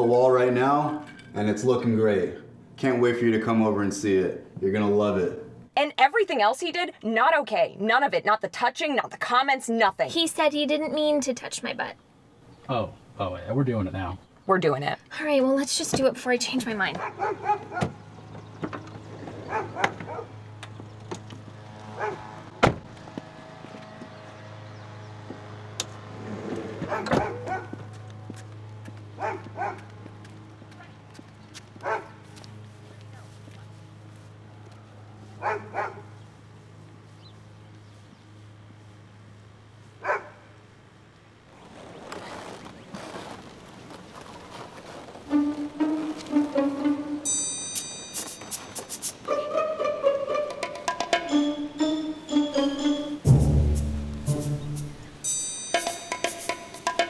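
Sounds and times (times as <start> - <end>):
dog barking: 17.0 - 17.9, 19.4 - 20.4, 22.0 - 22.3, 26.9 - 27.8, 29.2 - 29.9, 31.8 - 32.2, 35.4 - 36.1, 40.0 - 40.5
car doors opening: 22.5 - 23.0, 25.8 - 27.6
car door slam: 22.6 - 22.9
plucked string music: 45.3 - 48.0, 49.2 - 57.0.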